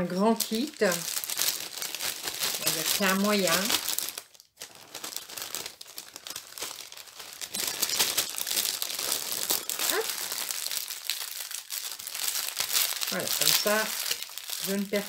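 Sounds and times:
plastic sachets crinkling: 0.0s - 15.0s.

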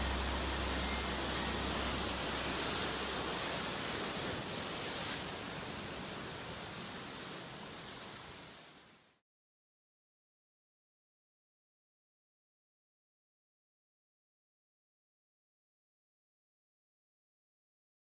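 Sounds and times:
low bass note: 0.0s - 3.8s
steady rushing noise: 0.0s - 8.3s.

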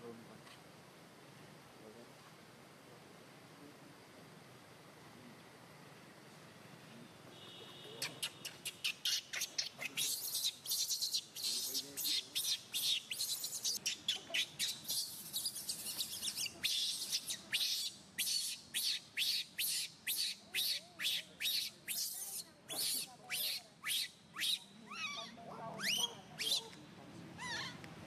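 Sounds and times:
baby monkey squealing and wailing: 8.2s - 26.6s, 27.4s - 27.8s.

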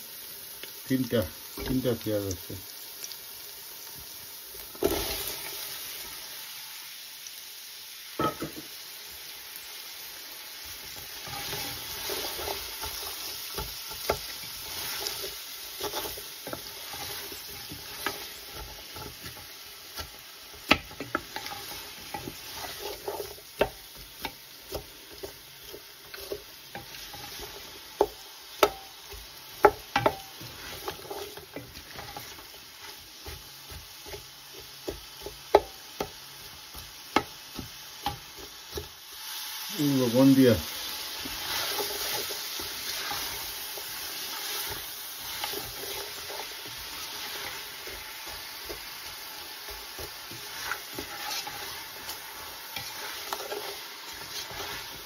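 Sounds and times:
onions sizzling in hot oil: 0.0s - 55.0s
wooden spoon knocking and scraping pot: 8.2s - 8.7s, 11.0s - 39.0s, 41.1s - 55.0s.

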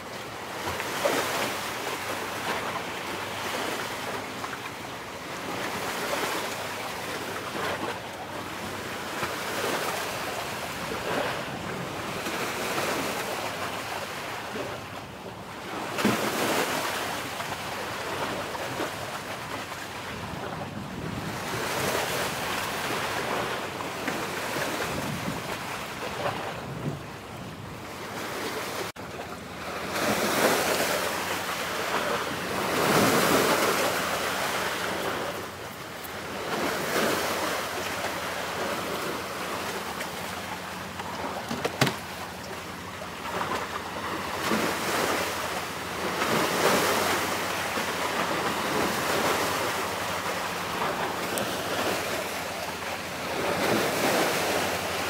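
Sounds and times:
sea waves washing in: 0.0s - 55.0s
wind rumbling on microphone: 18.0s - 28.8s.

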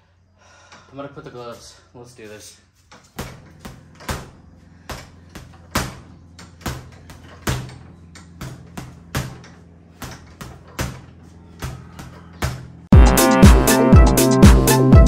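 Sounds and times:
gloves punching heavy bag: 2.9s - 13.0s.

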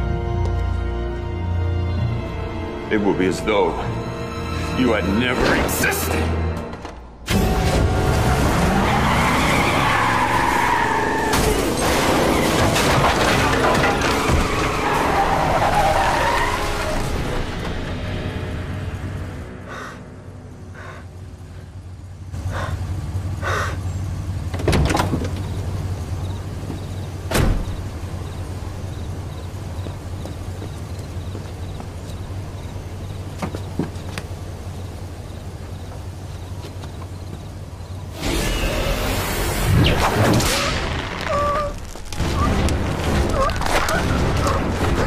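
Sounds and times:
car engine idling: 18.5s - 38.1s
car door shutting: 24.5s - 25.6s, 26.7s - 27.9s.

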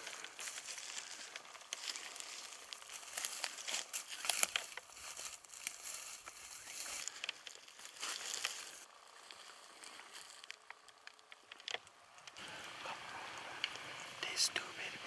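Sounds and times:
footsteps crunching through dry grass: 0.0s - 11.3s.

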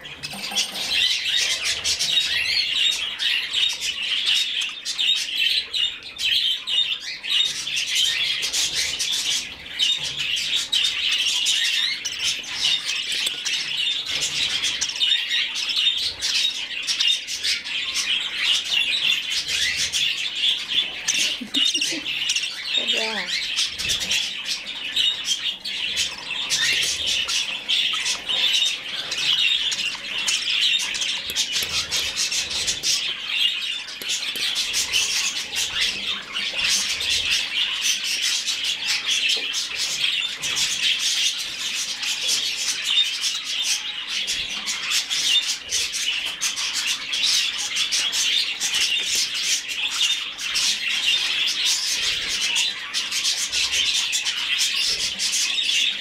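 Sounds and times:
budgerigar chick chirping: 0.0s - 5.7s, 18.2s - 43.8s.

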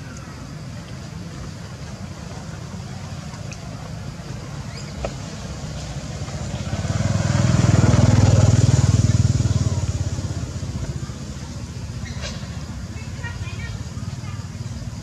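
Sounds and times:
vehicle engine passing by: 5.2s - 12.6s.

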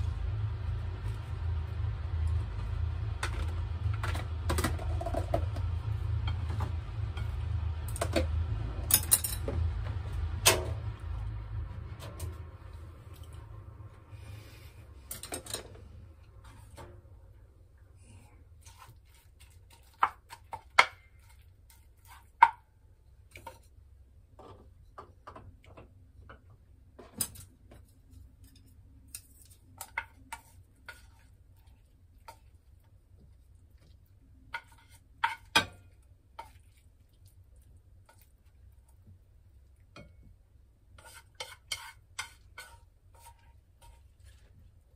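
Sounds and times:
low steady hum: 0.0s - 41.2s
utensils scraping a frying pan: 34.5s - 36.6s, 40.9s - 44.6s.

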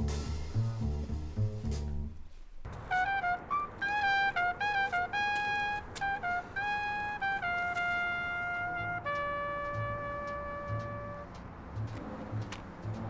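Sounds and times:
low bass notes: 0.0s - 2.8s, 9.0s - 13.0s
solo jazz trumpet: 2.7s - 11.4s.

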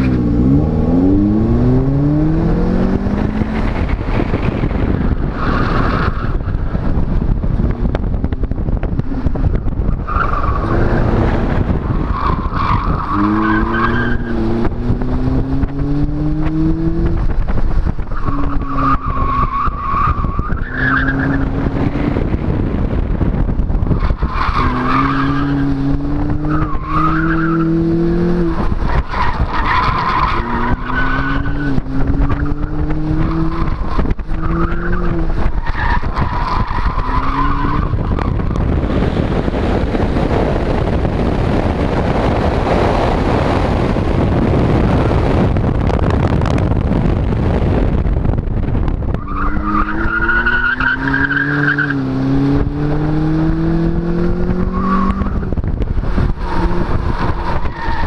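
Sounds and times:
car engine accelerating: 0.0s - 58.0s
wind rush on microphone: 0.0s - 58.0s
tires squealing: 3.4s - 6.9s, 9.5s - 14.7s, 18.0s - 46.0s, 48.8s - 53.7s, 54.4s - 58.0s.

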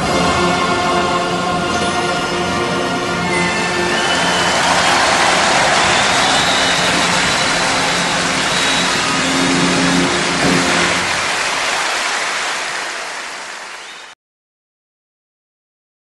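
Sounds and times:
dense rushing noise: 3.6s - 13.8s.

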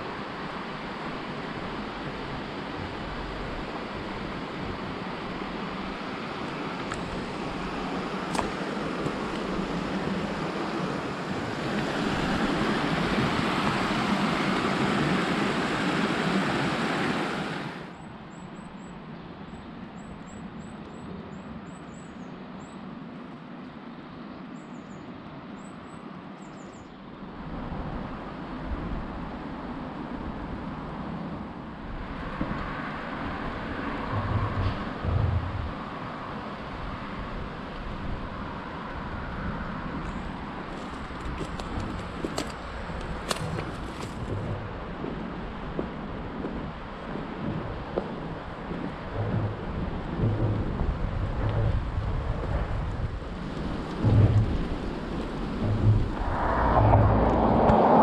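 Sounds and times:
river water rushing over stones: 0.0s - 17.9s, 39.9s - 52.2s
road traffic rumbling: 0.0s - 18.0s, 31.7s - 58.0s.

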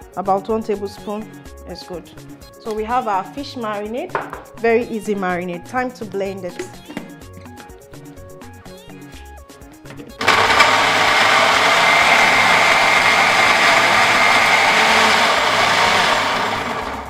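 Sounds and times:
blender running: 10.2s - 17.0s.

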